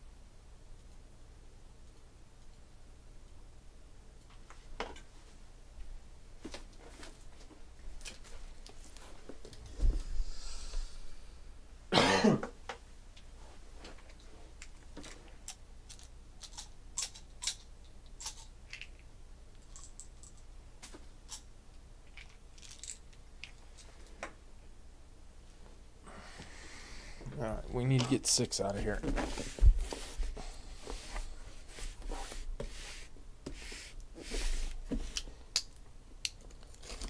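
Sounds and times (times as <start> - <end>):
person coughing: 11.9 - 12.5.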